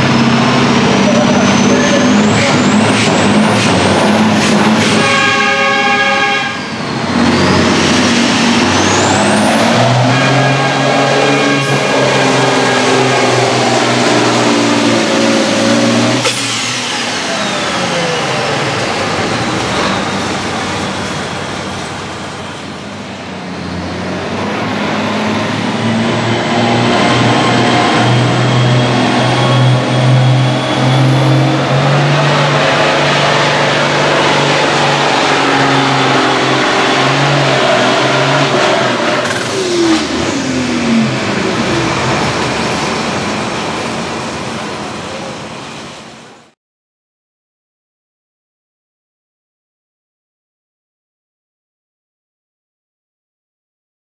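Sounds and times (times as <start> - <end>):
turbocharger whistle: 0.0 - 21.5, 25.7 - 41.1
diesel tractor engine at full load: 0.0 - 46.5.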